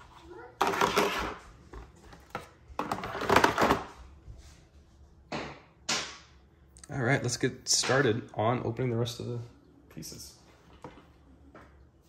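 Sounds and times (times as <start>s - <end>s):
plastic tray sliding scrape: 0.6s - 1.4s.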